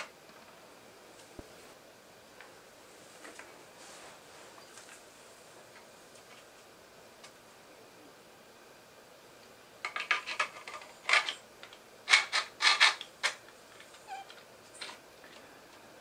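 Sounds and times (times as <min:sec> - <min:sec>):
plastic parts scraping and clicking: 0:09.8 - 0:15.4.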